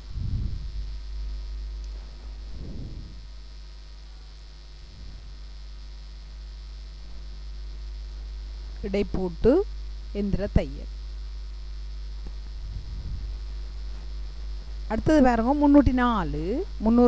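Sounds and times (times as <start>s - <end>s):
electrical mains hum: 0.0s - 17.0s
faint muffled low sounds: 0.0s - 17.0s.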